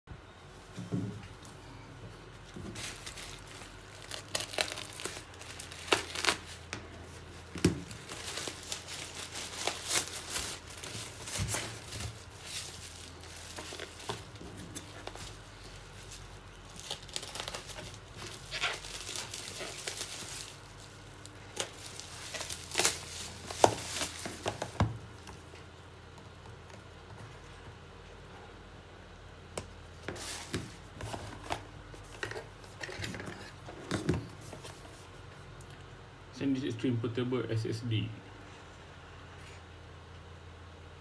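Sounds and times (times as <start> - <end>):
plastic packaging crinkling and tearing: 2.4 - 25.5.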